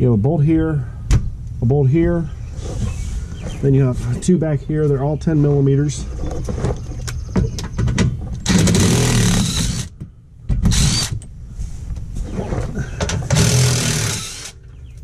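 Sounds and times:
impact driver rattling bolts: 0:07.8 - 0:10.0, 0:13.0 - 0:14.6.

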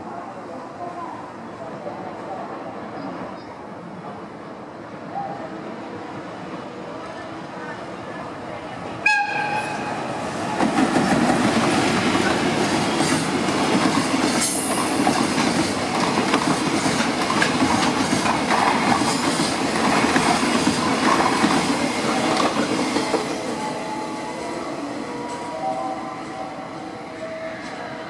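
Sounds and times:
train wheels rumbling on rails: 0:09.0 - 0:25.6.

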